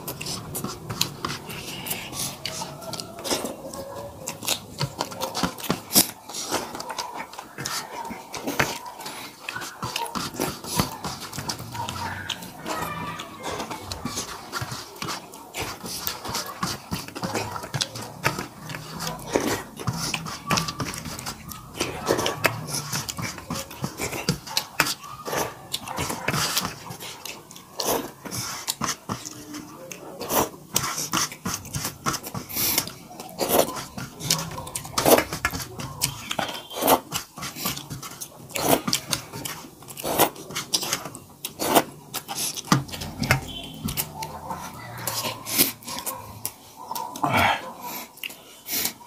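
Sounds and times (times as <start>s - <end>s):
chewing and lip-smacking: 0.0s - 49.0s
fingers working rice on steel plates: 0.0s - 49.0s.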